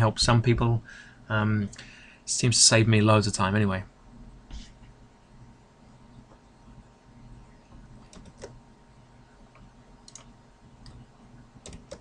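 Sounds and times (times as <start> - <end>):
low steady hum: 0.0 - 12.0
computer mouse clicks: 7.7 - 8.6, 9.5 - 11.0, 11.6 - 12.0.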